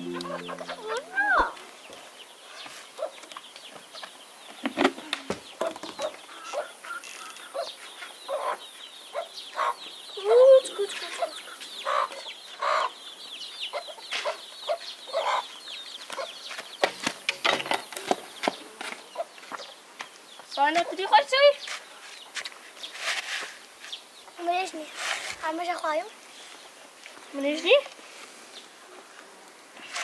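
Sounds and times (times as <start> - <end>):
chickens clucking: 0.0 - 1.6, 5.6 - 13.0, 13.6 - 19.8.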